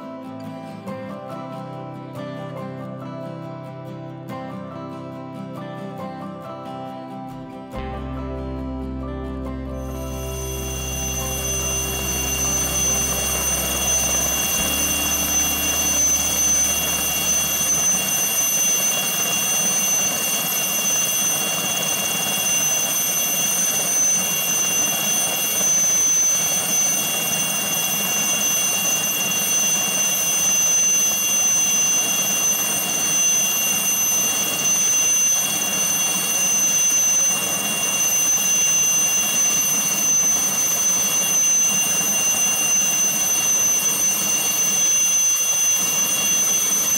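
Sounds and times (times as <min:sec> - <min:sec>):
high-pitched whine: 0:07.4 - 0:46.9
helicopter engine and rotor: 0:09.8 - 0:46.9.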